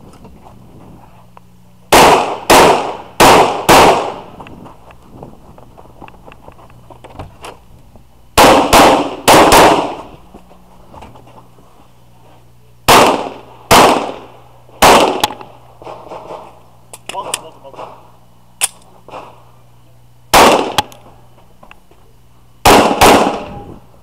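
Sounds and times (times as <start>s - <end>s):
pistol shots: 1.9s - 4.3s, 8.4s - 10.1s, 12.9s - 16.4s, 20.3s - 21.0s, 22.6s - 23.6s.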